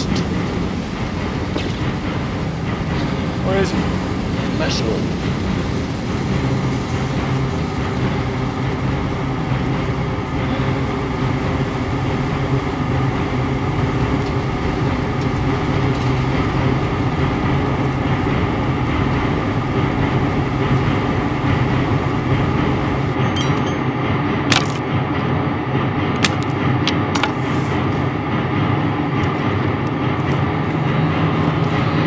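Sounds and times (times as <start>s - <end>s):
fire roaring: 0.0s - 32.0s
low hum: 0.0s - 32.0s.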